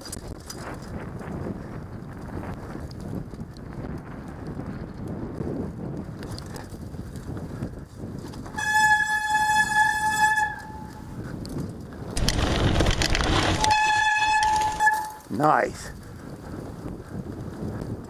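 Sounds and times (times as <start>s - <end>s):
tyres rumbling on dirt trail: 0.0s - 18.0s
bike brake squealing: 8.5s - 11.1s, 13.4s - 15.3s.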